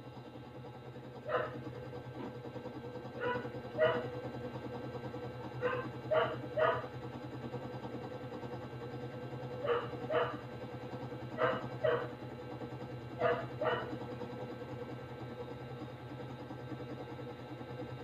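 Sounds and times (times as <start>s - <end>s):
steady low hum: 0.0s - 18.0s
dog barking: 1.3s - 1.6s, 3.2s - 4.1s, 5.6s - 6.9s, 9.6s - 10.4s, 11.4s - 12.2s, 13.2s - 14.0s.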